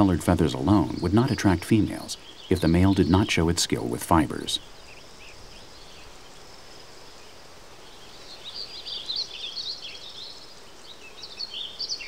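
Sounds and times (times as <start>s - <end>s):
faint outdoor hiss: 0.0s - 12.0s
weaver birds chattering: 0.0s - 12.0s.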